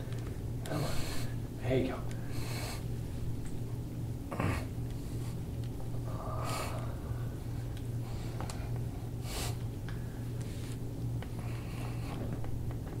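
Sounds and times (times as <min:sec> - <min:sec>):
steady low hum: 0:00.0 - 0:13.0
man breathing hard: 0:00.6 - 0:01.5, 0:06.0 - 0:10.3.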